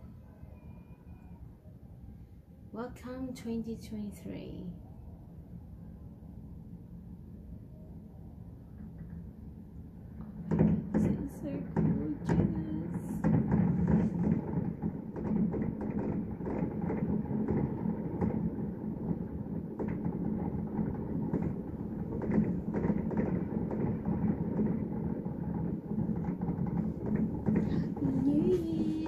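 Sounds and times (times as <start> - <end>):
steady low hum: 1.5 - 29.0
low rumble: 9.3 - 29.0
distant fireworks popping and banging: 10.1 - 29.0.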